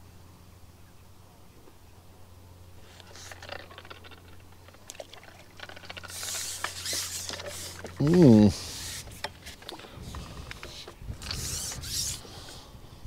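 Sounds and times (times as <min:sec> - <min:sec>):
water trickling and splashing: 0:03.2 - 0:09.9.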